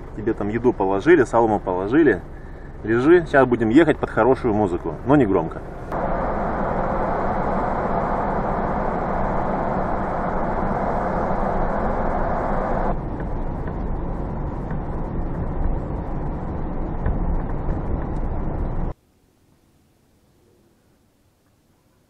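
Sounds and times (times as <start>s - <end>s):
road and engine noise inside car: 0.0s - 19.0s.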